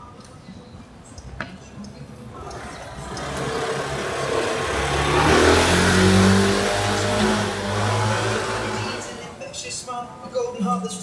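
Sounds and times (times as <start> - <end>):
vehicle engine accelerating: 2.4 - 9.4.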